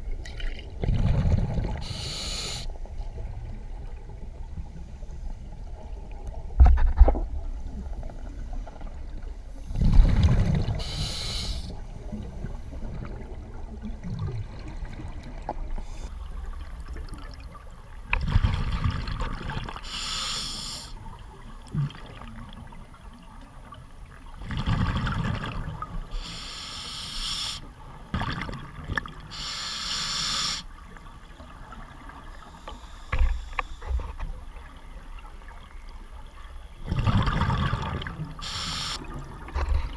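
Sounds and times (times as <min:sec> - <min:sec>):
regulator hiss of inhalation: 0:01.8 - 0:02.7, 0:10.8 - 0:11.8, 0:19.8 - 0:21.0, 0:26.1 - 0:27.7, 0:29.3 - 0:30.7, 0:38.4 - 0:39.0
underwater bubbling exhalation: 0:36.8 - 0:39.3.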